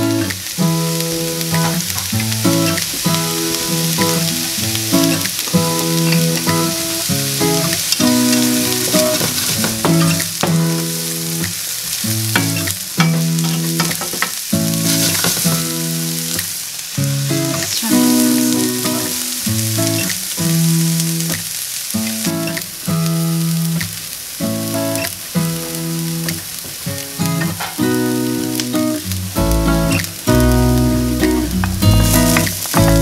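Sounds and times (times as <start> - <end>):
onion sizzling in oil: 0.0 - 33.0
background music held notes: 27.9 - 33.0.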